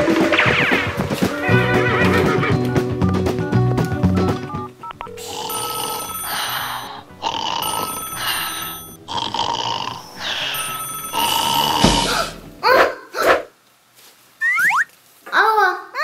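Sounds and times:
background music: 0.0s - 12.7s
telephone ringing: 4.4s - 12.6s.

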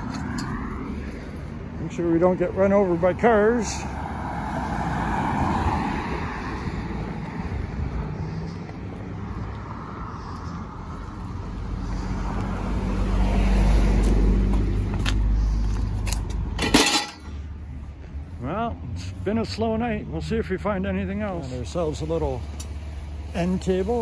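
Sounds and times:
car driving past: 3.8s - 15.5s.

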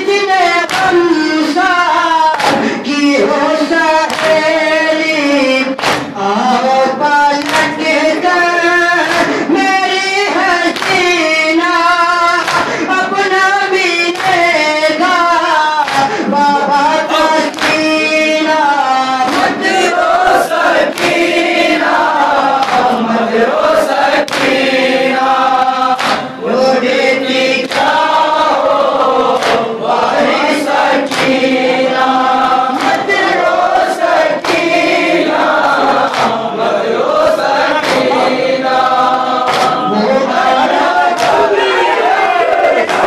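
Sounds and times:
male voices chanting in unison: 0.0s - 43.0s
chest-beating slaps: 0.7s - 1.0s, 2.3s - 2.8s, 4.1s - 4.6s, 5.8s - 6.2s, 7.4s - 7.9s, 9.0s - 9.4s, 12.4s - 12.8s, 15.8s - 16.2s, 17.4s - 18.0s, 19.3s - 22.0s, 22.6s - 23.0s, 24.1s - 26.4s, 27.6s - 36.6s, 37.6s - 43.0s.

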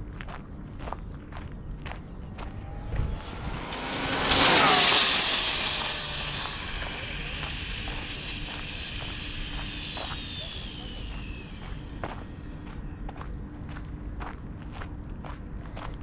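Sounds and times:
electric motor whine passing: 1.7s - 14.2s.

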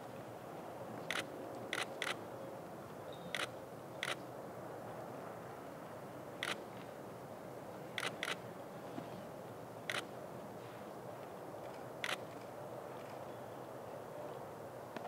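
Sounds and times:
steady background hiss: 0.0s - 15.0s
camera shutter clicking: 1.1s - 2.2s, 8.0s - 8.4s, 12.0s - 12.2s.

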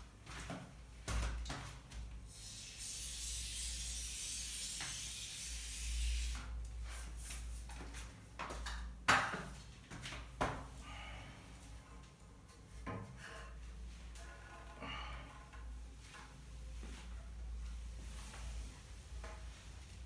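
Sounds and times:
rubbing scraping hiss: 2.4s - 6.3s.

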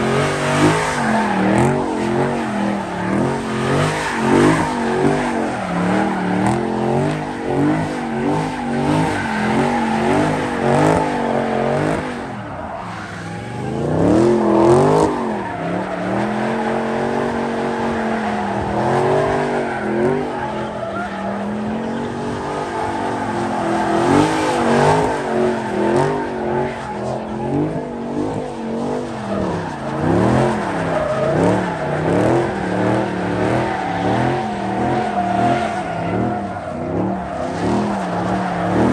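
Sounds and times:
car engine revving: 0.0s - 38.9s.

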